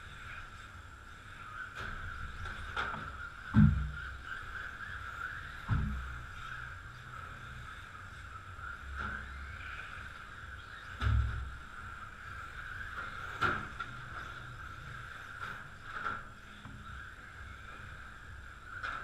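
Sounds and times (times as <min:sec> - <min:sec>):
dull thumps: 0:02.8 - 0:04.1, 0:05.6 - 0:06.2.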